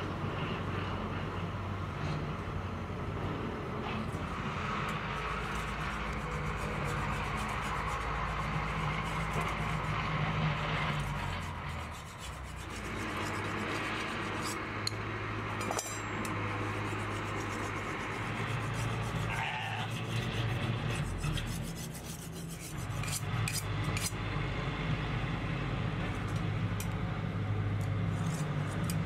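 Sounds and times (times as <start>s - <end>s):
tractor engine droning: 0.0s - 29.0s
steel blades scraping: 4.1s - 24.2s.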